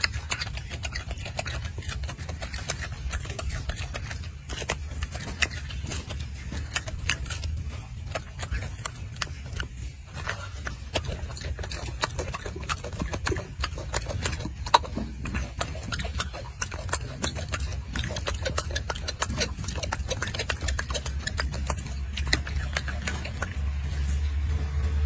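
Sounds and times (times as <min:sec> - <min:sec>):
monkey chewing and lip smacking: 0:00.0 - 0:25.0
low rumble: 0:05.0 - 0:25.0.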